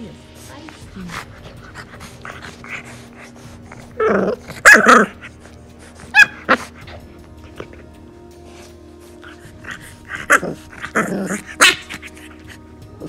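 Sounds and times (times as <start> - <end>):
puppy growling: 0.7 - 13.0
puppy barking: 4.0 - 5.3, 6.0 - 7.0, 9.9 - 12.5.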